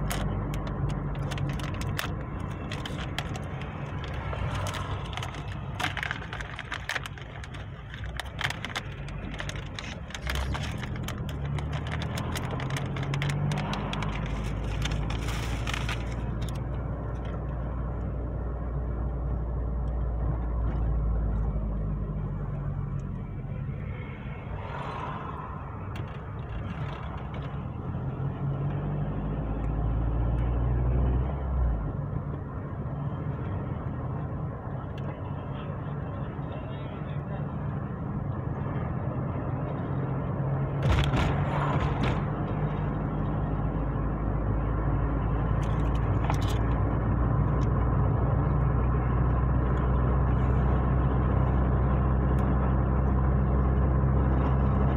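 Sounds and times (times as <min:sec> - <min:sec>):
crackling clicks: 0:00.0 - 0:17.4
car engine and road rumble: 0:00.0 - 0:54.9.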